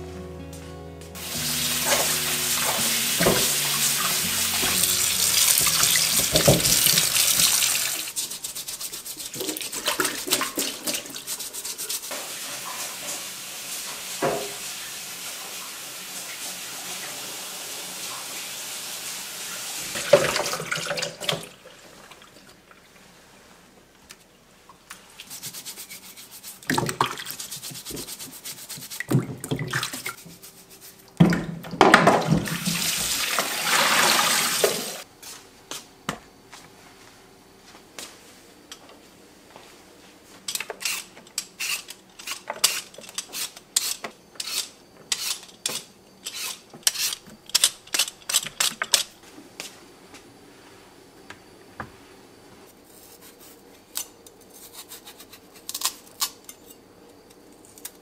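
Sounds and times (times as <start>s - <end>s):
vegetables rubbed while rinsed: 1.2s - 15.6s, 25.0s - 31.2s
water running from tap: 1.2s - 21.6s, 32.3s - 35.0s.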